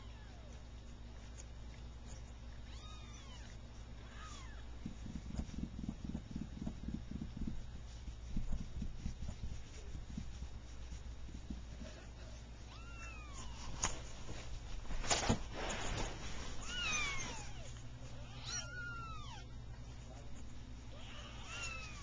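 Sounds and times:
rustle on a blanket: 0.0 - 22.0
kittens mewing: 11.8 - 13.7, 16.6 - 19.6, 20.9 - 22.0.

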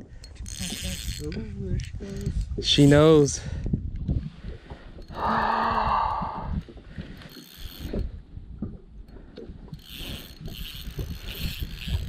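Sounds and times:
fishing reel clicking: 0.0 - 3.3, 5.0 - 8.2, 9.0 - 12.0.

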